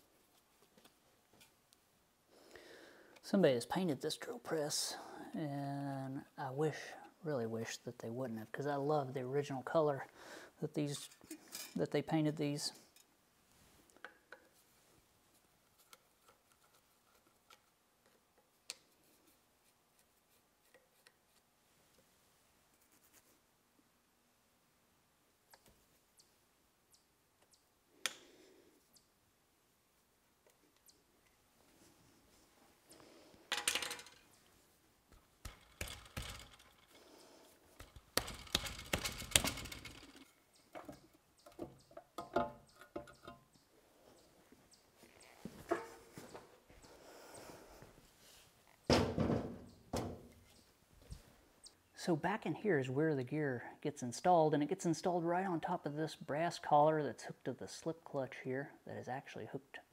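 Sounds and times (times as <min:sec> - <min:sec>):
metal parts clicking and rattling: 0:33.5 - 0:34.4, 0:35.4 - 0:36.9, 0:37.8 - 0:40.4.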